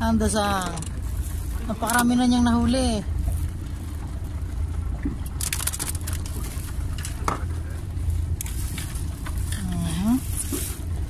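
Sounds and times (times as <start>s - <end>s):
low rumble: 0.0s - 11.0s
gear handling clicks and rustles: 5.2s - 7.4s.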